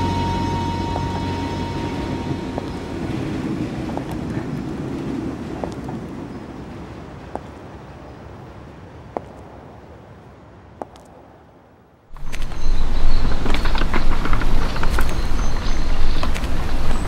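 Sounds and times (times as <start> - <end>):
suitcase wheels rumbling on pavement: 12.2 - 17.0.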